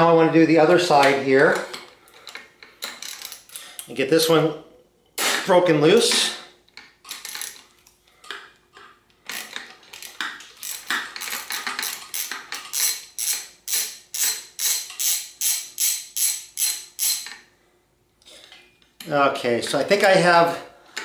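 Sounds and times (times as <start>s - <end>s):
ratchet wrench clicking: 9.3s - 17.4s.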